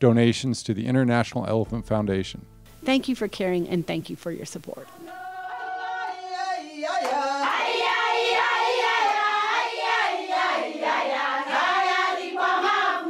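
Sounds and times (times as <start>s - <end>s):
children singing in chorus: 5.0s - 13.0s.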